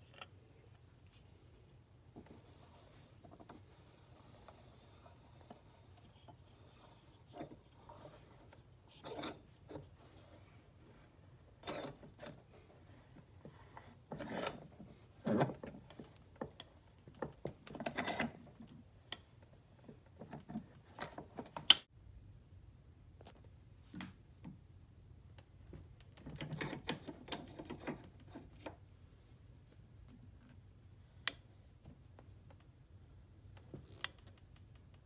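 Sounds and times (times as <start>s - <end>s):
metal clamp clicking and scraping: 2.5s - 9.9s, 10.9s - 19.2s, 26.2s - 28.8s.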